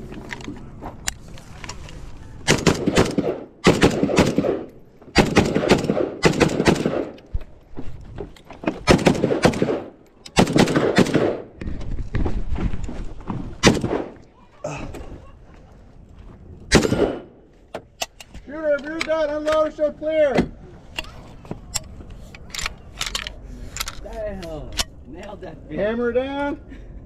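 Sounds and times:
rifle firing rapid shots: 2.5s - 7.2s, 8.9s - 11.5s, 13.6s - 14.2s, 16.7s - 17.3s.

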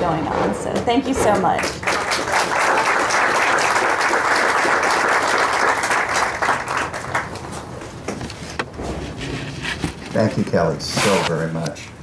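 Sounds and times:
audience applauding: 1.4s - 7.6s.

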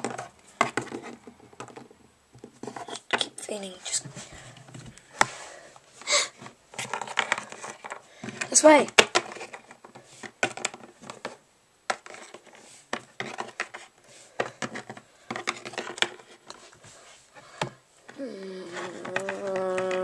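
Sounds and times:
plastic figurines clacking: 0.0s - 3.6s, 6.7s - 16.6s, 17.6s - 20.0s.

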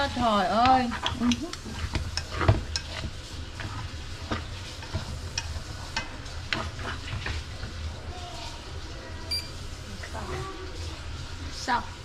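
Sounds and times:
vegetables sizzling in a wok: 0.0s - 12.0s
chopsticks clicking against pan: 0.6s - 3.0s.

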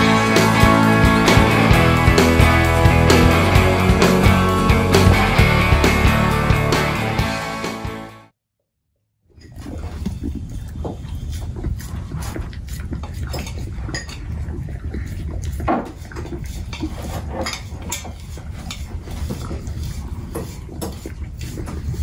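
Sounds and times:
dog licking metal pot: 9.4s - 22.0s.

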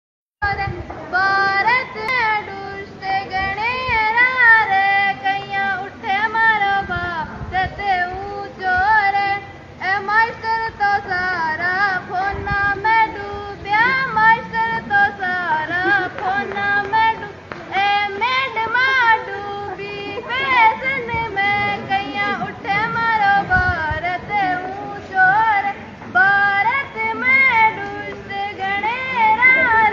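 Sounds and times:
girl singing: 0.4s - 29.9s.

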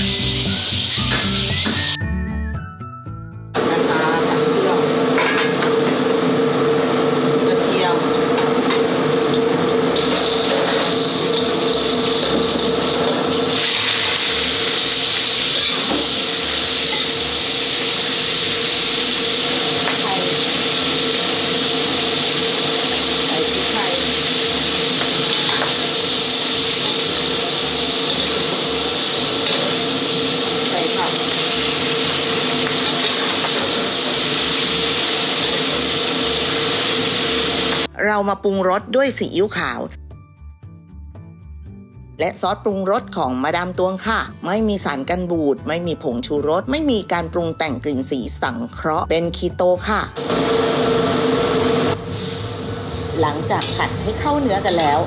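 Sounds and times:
hot oil sizzling in a wok: 0.0s - 2.0s, 3.8s - 37.9s, 50.2s - 55.0s.

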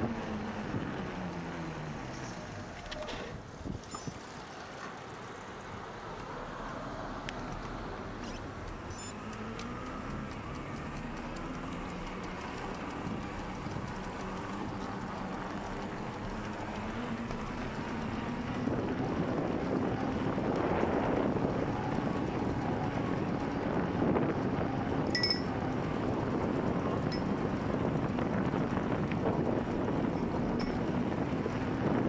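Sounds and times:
wind rushing over microphone: 7.8s - 32.0s.

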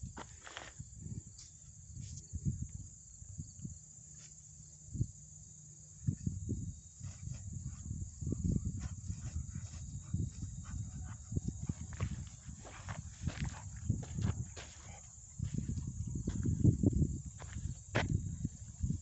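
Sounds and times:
footsteps through tall grass: 8.7s - 16.6s.

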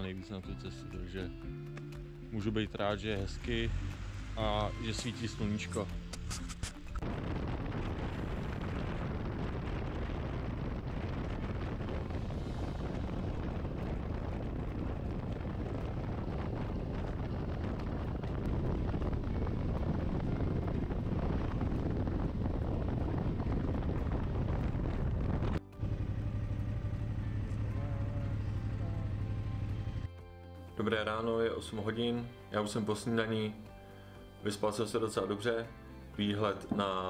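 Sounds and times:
wind rush on microphone: 3.1s - 30.1s
motorcycle engine running: 7.0s - 30.2s.

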